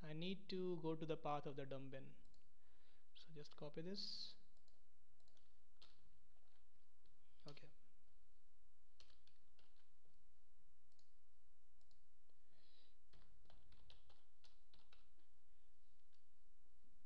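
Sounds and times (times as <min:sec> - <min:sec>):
computer mouse clicks: 0:04.5 - 0:07.6, 0:11.8 - 0:12.0
keyboard key presses: 0:13.1 - 0:15.3.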